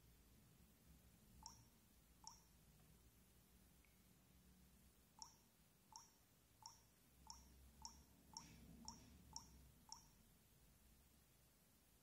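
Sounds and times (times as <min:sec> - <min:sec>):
phone key-press beeps: 0:01.4 - 0:02.5.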